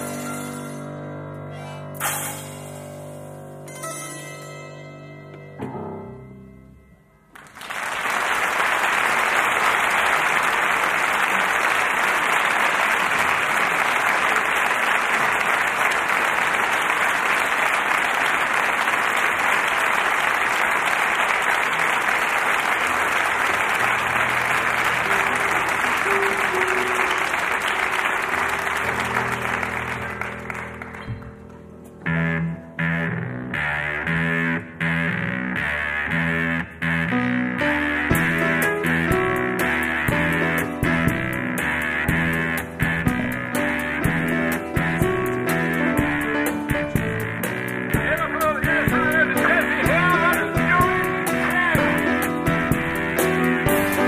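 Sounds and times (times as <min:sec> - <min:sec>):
instrument notes: 0:00.0 - 0:07.3, 0:23.6 - 0:54.0
audience applauding: 0:07.3 - 0:31.6
low instrument notes: 0:22.6 - 0:54.0.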